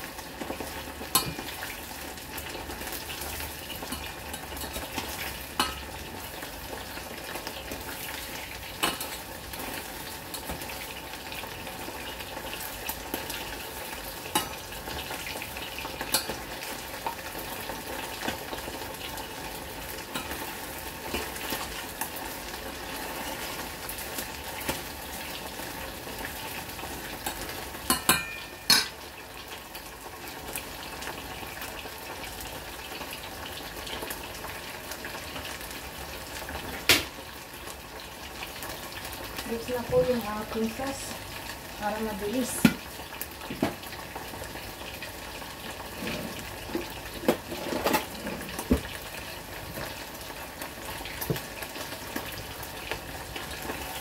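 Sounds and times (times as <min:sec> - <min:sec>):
meat deep-frying in oil: 0:00.0 - 0:54.0
tongs clinking against pot: 0:27.9 - 0:29.0.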